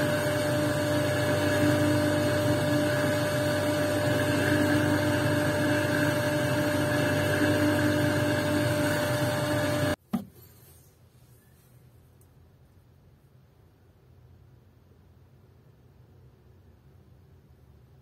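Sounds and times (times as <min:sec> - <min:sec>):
polishing wheel motor whirring: 0:00.0 - 0:10.0.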